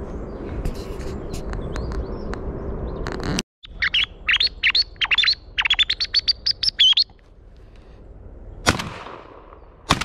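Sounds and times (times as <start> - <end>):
bird call whistle chirps: 3.6 - 7.1.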